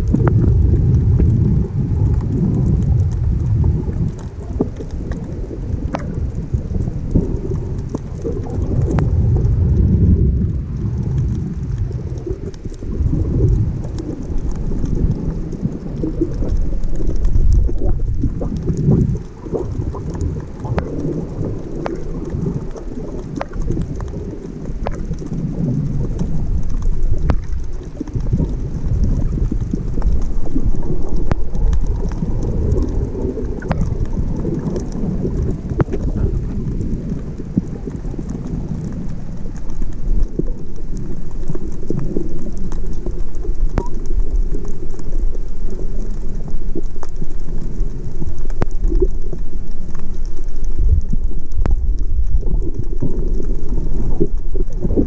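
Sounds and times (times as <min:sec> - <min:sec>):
muffled underwater rumble: 0:00.0 - 0:55.0
faint sharp ticks: 0:11.1 - 0:55.0.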